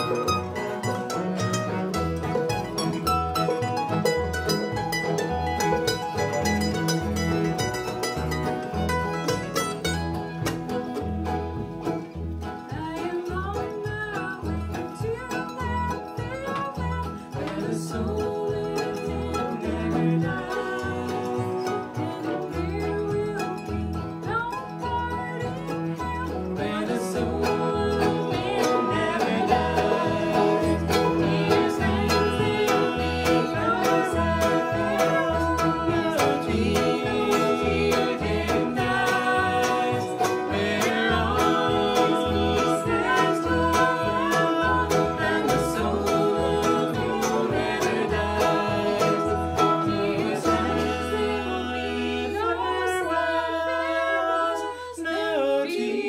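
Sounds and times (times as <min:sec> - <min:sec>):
acoustic bluegrass band playing: 0:00.0 - 0:56.0
person singing: 0:12.8 - 0:56.0.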